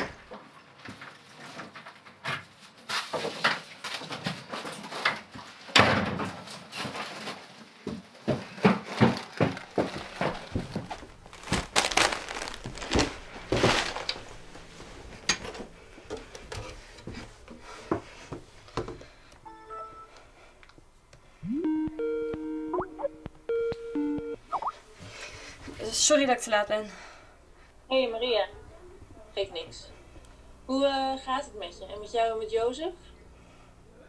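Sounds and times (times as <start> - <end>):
clothing and paper rustling: 6.5 - 19.2.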